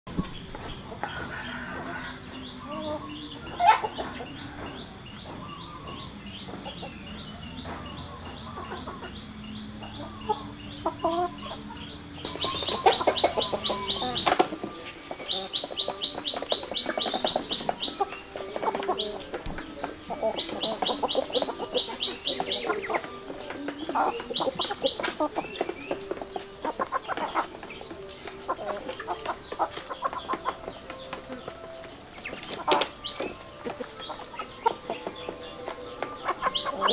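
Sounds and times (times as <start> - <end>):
chickens clucking: 0.1 - 36.9.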